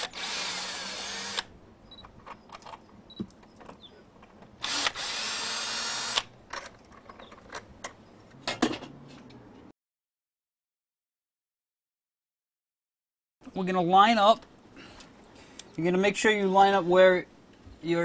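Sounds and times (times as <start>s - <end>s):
cordless drill motor running: 0.0s - 1.5s, 4.6s - 6.3s.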